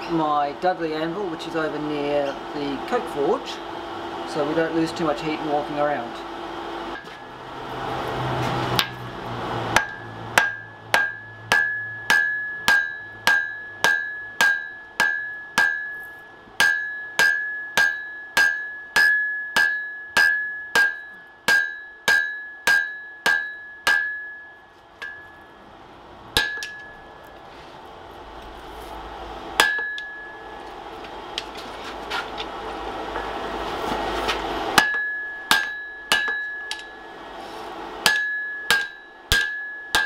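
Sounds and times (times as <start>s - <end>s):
hammer striking hot iron on anvil: 6.9s - 7.3s, 8.6s - 9.0s, 9.7s - 25.6s, 26.4s - 27.3s, 29.5s - 31.6s, 32.4s - 40.0s
anvil ringing: 9.8s - 25.6s, 26.4s - 27.3s, 29.6s - 31.0s, 34.7s - 37.3s, 38.0s - 40.0s.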